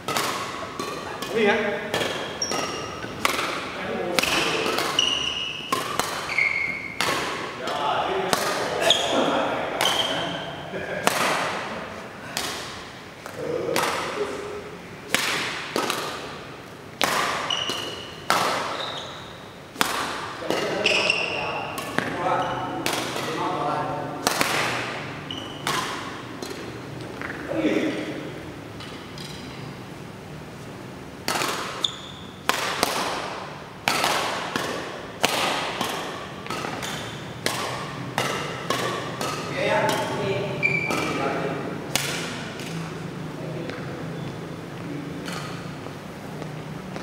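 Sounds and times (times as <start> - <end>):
court shoes squeaking: 0.0 - 14.6, 17.0 - 23.6, 24.2 - 27.6, 28.7 - 29.8, 30.6 - 47.0
racket hitting shuttlecock: 0.0 - 29.6, 31.2 - 42.8, 44.7 - 47.0
shoe squeak on court: 2.2 - 3.1, 4.4 - 7.0, 8.8 - 9.2, 9.8 - 10.5, 17.4 - 19.4, 20.6 - 22.7, 25.3 - 25.7, 31.8 - 32.4, 40.6 - 41.2.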